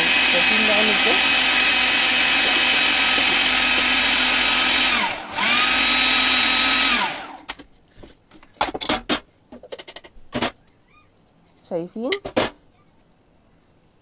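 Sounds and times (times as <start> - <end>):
food processor motor whining: 0.0 - 7.6.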